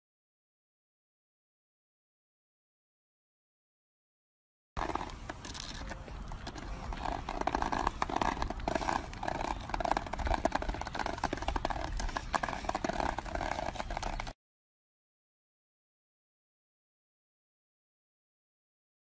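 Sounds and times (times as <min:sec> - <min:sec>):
dog claws clicking on asphalt: 0:04.8 - 0:14.4.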